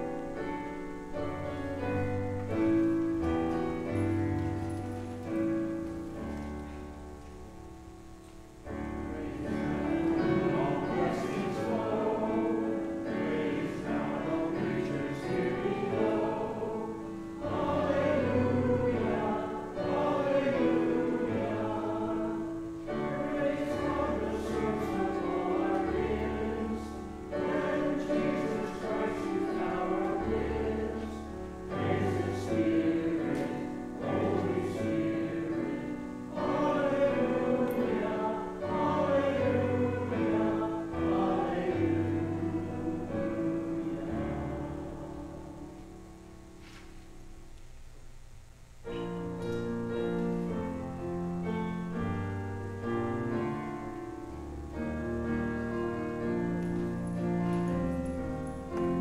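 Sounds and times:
digital piano accompaniment: 0.0 - 47.5, 48.8 - 59.0
group of voices singing: 8.9 - 45.9.

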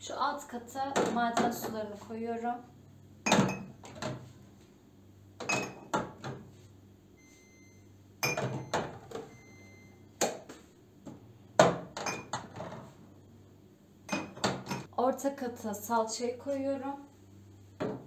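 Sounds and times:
glass bottles clinking: 3.2 - 3.8, 5.4 - 6.0, 8.2 - 9.0, 11.9 - 12.6, 14.1 - 14.9.

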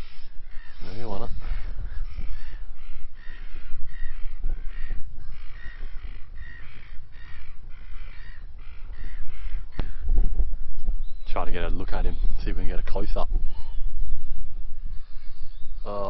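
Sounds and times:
crow cawing: 0.0 - 10.2
low steady rumble: 0.0 - 16.0.

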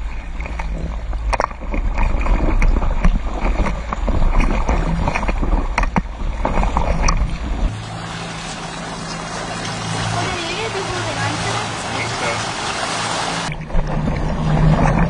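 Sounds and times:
water rushing and splashing: 0.0 - 15.0.

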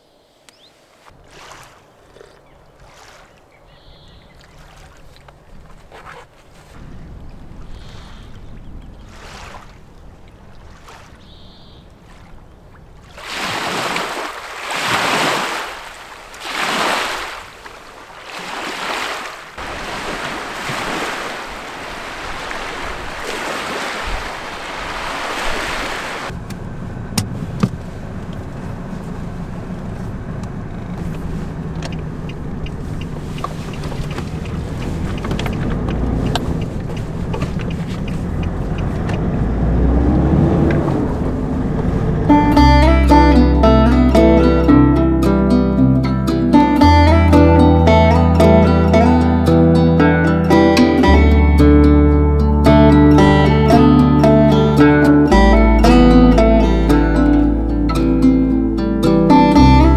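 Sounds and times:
road noise: 0.0 - 59.9
wind: 0.0 - 59.9
lake waves on shore: 0.5 - 26.4, 31.0 - 45.8, 46.4 - 57.5
car engine drone inside cabin: 26.3 - 49.2.

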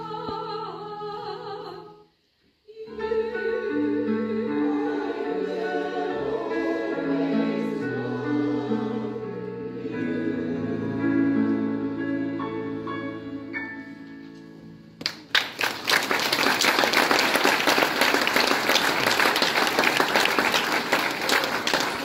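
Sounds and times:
choir holding a chord: 2.7 - 14.1
audience applause: 15.0 - 22.0.

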